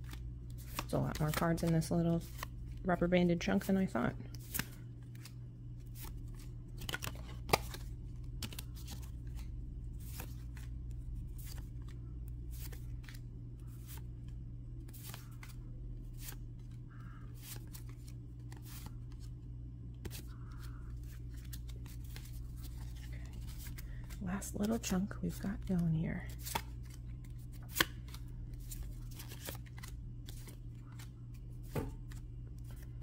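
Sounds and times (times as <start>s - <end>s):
steady low hum: 0.0s - 33.0s
cards flicking and tapping: 26.3s - 32.9s.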